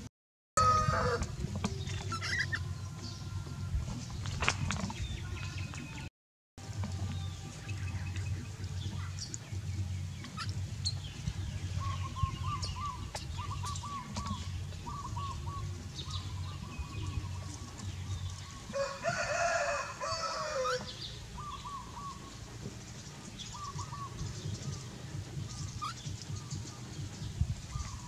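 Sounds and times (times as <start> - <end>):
rooster crowing: 0.6 - 1.3, 18.7 - 21.0
small birds chirping: 1.4 - 6.1, 6.7 - 28.0.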